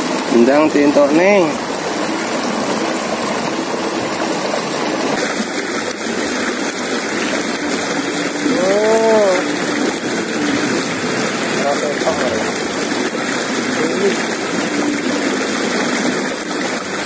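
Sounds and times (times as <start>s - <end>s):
river rushing over boulders: 4.9s - 15.5s
voice-like sound: 8.4s - 9.6s.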